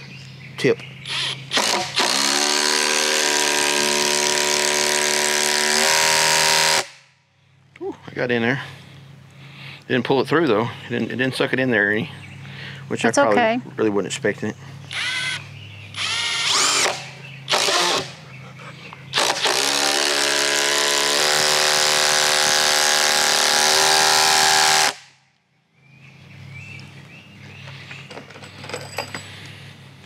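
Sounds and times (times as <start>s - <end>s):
cordless driver sinking screw: 1.1s - 6.9s, 14.9s - 15.4s, 16.0s - 18.1s, 19.2s - 25.0s.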